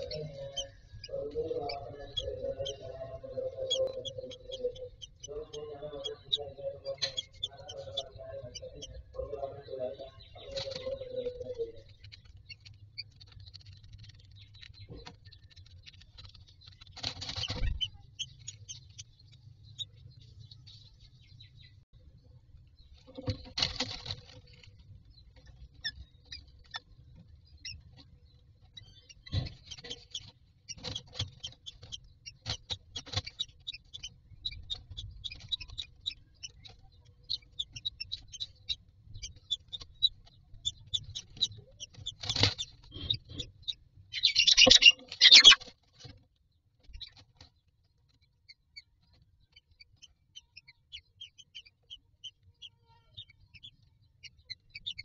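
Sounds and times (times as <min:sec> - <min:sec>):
chicks begging with high chirps: 0:00.0 - 0:46.2, 0:46.8 - 0:55.0
birds peeping: 0:00.0 - 0:55.0
loud raspy bird calls: 0:42.4 - 0:45.6.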